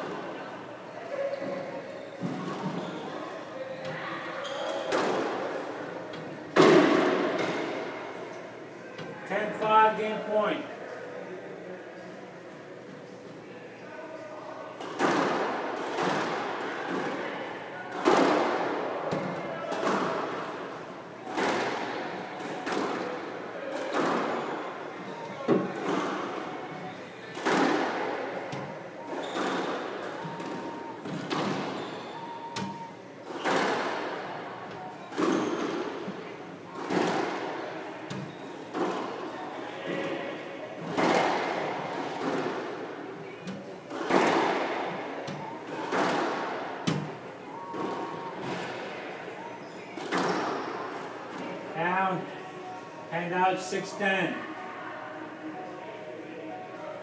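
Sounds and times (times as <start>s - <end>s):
squash ball striking: 6.6s - 7.9s, 27.4s - 31.8s, 32.6s - 34.2s, 43.9s - 45.0s.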